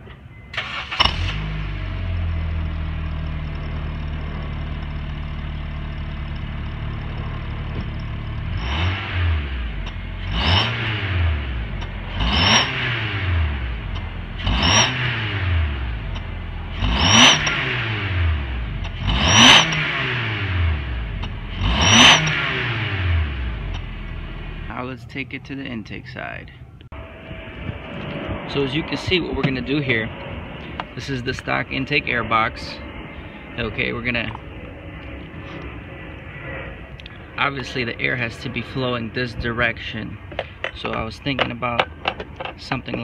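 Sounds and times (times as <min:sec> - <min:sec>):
car engine cranking: 0:00.0 - 0:24.7, 0:39.5 - 0:43.0
car engine idling: 0:00.0 - 0:25.6
car engine revving: 0:00.6 - 0:24.8.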